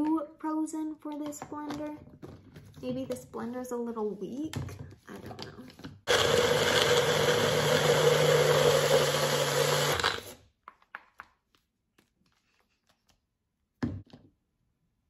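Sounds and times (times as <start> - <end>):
blender motor running: 6.1 - 10.4.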